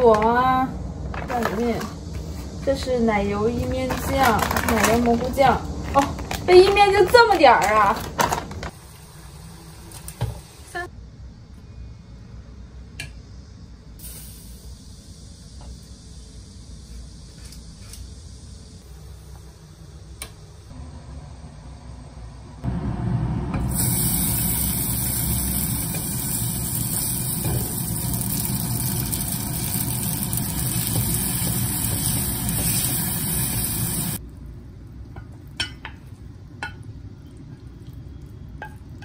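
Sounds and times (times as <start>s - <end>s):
food sizzling in hot pan: 14.0s - 17.3s, 23.7s - 34.2s.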